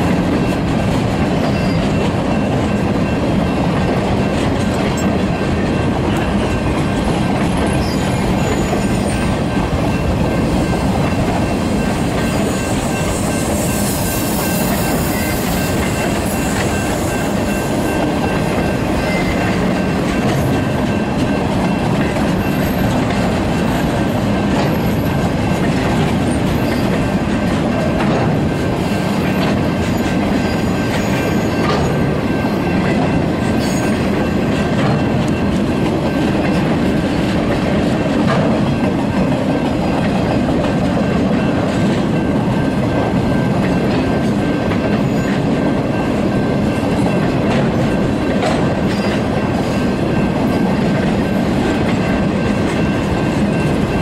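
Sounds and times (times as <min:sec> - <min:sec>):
freight train rumbling past: 0:00.0 - 0:54.0
high wheel squeal: 0:01.4 - 0:02.4, 0:07.5 - 0:17.7, 0:28.8 - 0:32.8.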